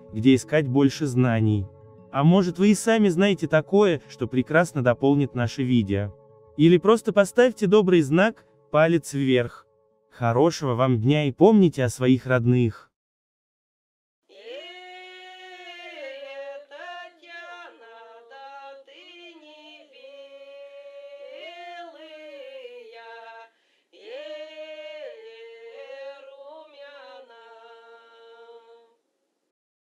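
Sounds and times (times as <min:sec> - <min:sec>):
woman singing unaccompanied: 0:14.3 - 0:29.0.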